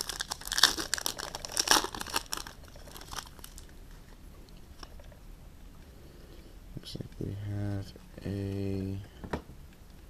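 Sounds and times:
foil wrapper tearing and crinkling: 0.0 - 3.7.

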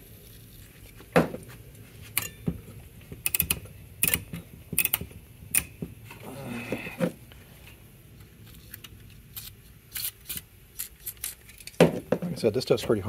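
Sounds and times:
rotary switch clicks: 3.2 - 5.8.

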